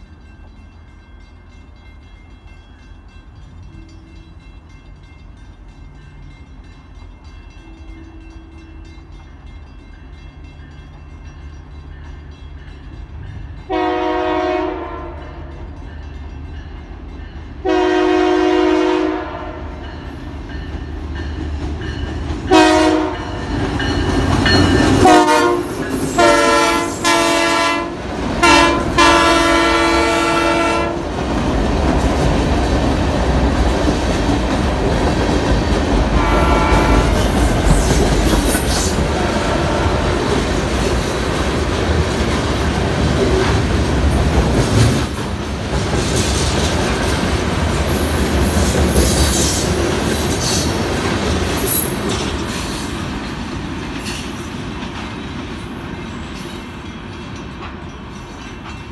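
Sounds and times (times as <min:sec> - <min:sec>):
locomotive horn blasts: 0:13.7 - 0:15.5, 0:17.6 - 0:19.8, 0:22.5 - 0:23.4, 0:25.0 - 0:31.0, 0:36.1 - 0:37.2, 0:39.2 - 0:40.2.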